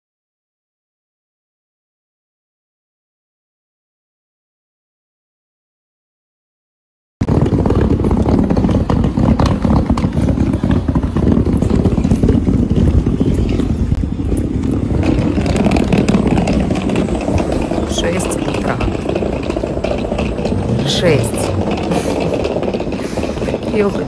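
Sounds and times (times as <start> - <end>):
suitcase wheels rolling over bricks: 7.2 - 24.0.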